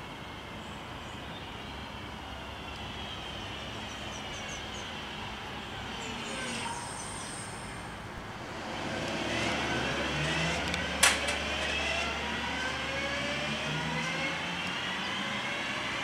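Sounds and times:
wheel and rail noise: 3.8s - 16.0s
electric train motors whining: 8.6s - 16.0s.

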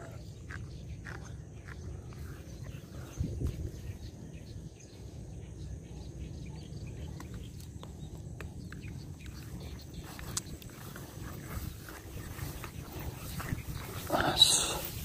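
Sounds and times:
wind buffeting microphone: 0.0s - 5.7s, 6.7s - 15.0s.

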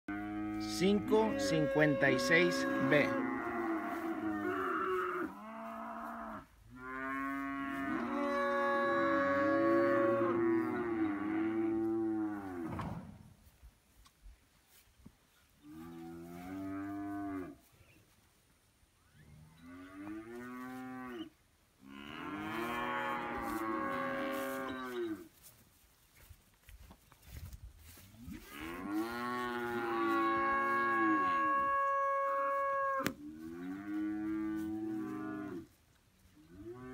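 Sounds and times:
cattle mooing: 0.1s - 12.7s, 21.9s - 25.2s, 28.4s - 35.7s.

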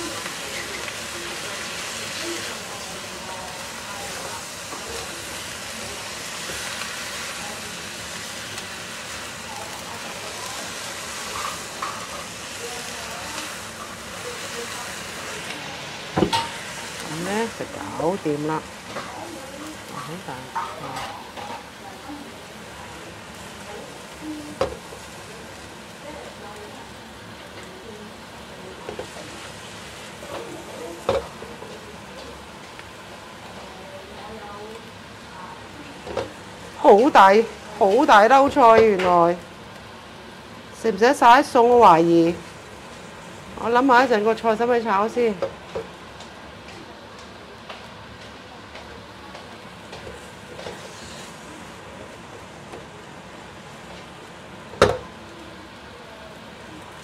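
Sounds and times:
food sizzling in a wok: 0.0s - 57.0s
spatula stirring in a wok: 0.0s - 57.0s
spatula scraping and knocking pan: 48.7s - 51.5s.

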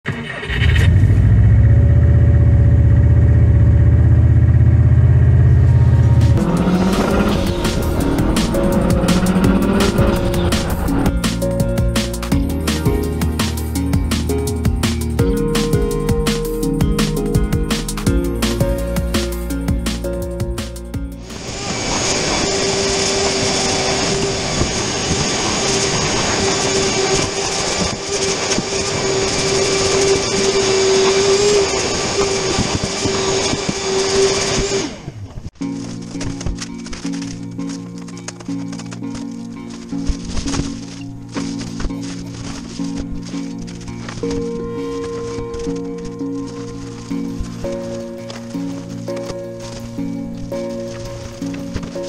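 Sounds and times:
car engine idling: 0.5s - 14.4s
shop vacuum whining: 5.8s - 11.1s, 21.2s - 35.4s.

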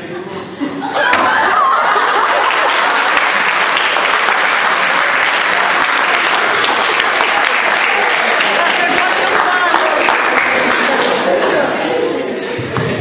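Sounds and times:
crowd applauding: 1.5s - 11.7s.

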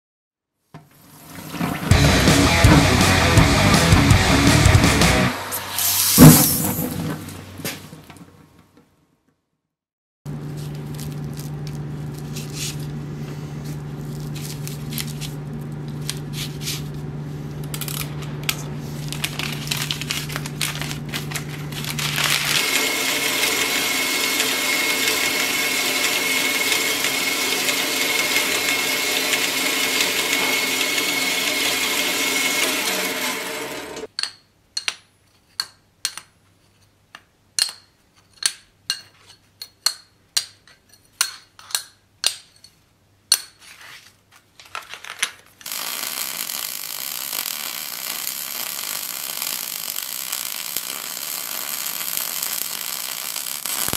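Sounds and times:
band saw cutting steel: 1.6s - 6.9s, 21.3s - 34.1s, 45.7s - 53.9s
low hum: 10.3s - 25.4s.

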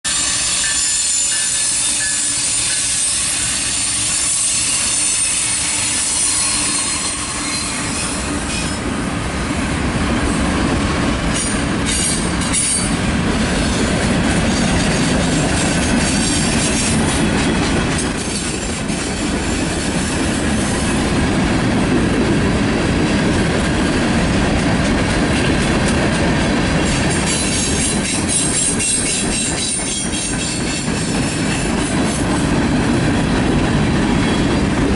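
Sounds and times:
high-pitched wheel squeal: 0.1s - 8.9s
diesel locomotives passing: 0.1s - 34.9s
heavy rumble of wheels on rail: 0.1s - 34.9s.

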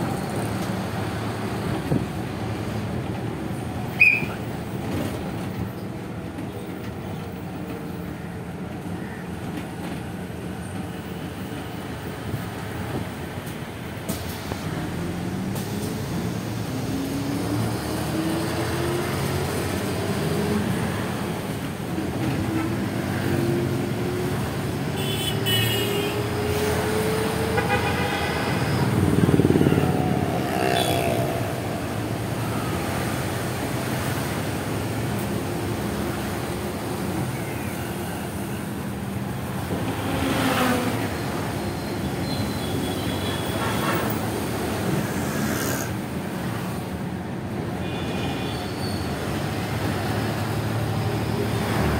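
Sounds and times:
engine and road rumble: 0.0s - 51.9s
vehicle horn toots: 25.0s - 26.2s, 27.5s - 28.9s.

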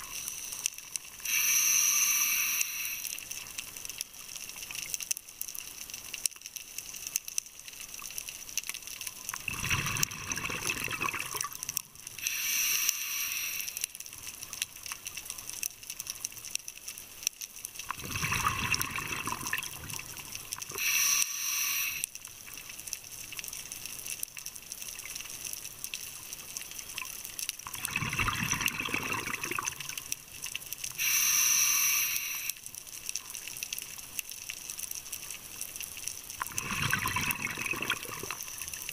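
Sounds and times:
regulator air hiss: 1.2s - 3.2s, 12.2s - 14.0s, 20.7s - 22.1s, 31.0s - 32.6s
exhaled bubbles rumbling: 9.4s - 11.6s, 17.9s - 20.4s, 27.7s - 30.0s, 36.4s - 38.9s.

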